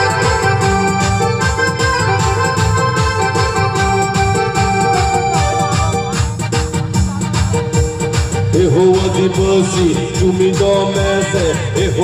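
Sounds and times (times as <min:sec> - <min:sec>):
electronic keyboard chords: 0:00.0 - 0:12.0
steady drum beat: 0:00.0 - 0:12.0
person singing: 0:08.4 - 0:12.0.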